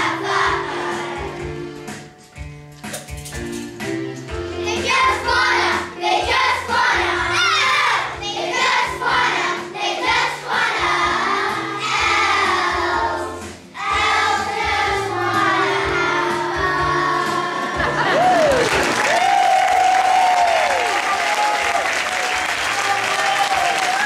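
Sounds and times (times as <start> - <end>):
children's choir singing: 0.0 - 2.0, 4.6 - 18.1
instrumental accompaniment: 0.0 - 18.9.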